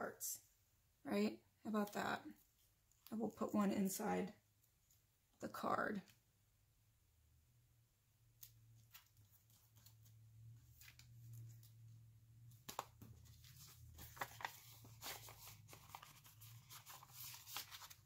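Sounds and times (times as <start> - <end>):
paper rustling and tapping: 12.5 - 18.0.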